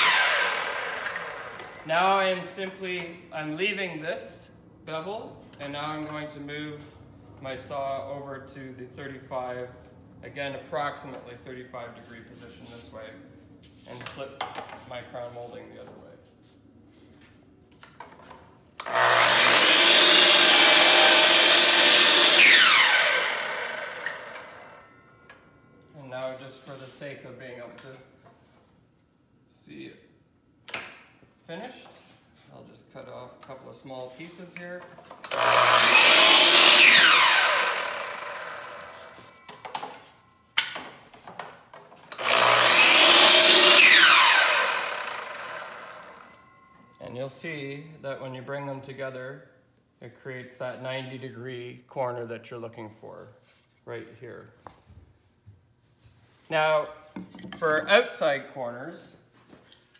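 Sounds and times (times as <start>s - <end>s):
mitre saw cutting wood: 0.0s - 1.8s, 18.8s - 24.8s, 35.3s - 39.4s, 42.1s - 46.3s
saw blade winding down whine: 0.0s - 1.9s, 18.8s - 24.9s, 35.3s - 40.0s, 42.2s - 46.5s.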